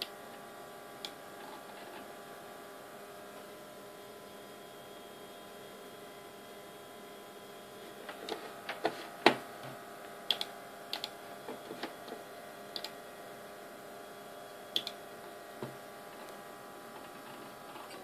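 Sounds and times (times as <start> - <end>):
computer humming: 0.0 - 18.0
computer mouse clicks: 10.3 - 11.2, 12.7 - 13.0, 14.8 - 15.0.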